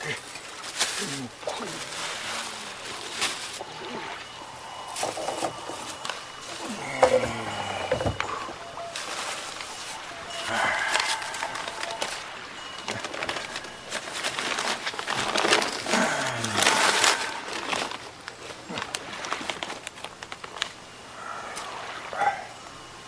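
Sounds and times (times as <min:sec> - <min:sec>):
newspaper crinkling and rustling: 0:00.0 - 0:21.0
low falling call: 0:01.0 - 0:18.9.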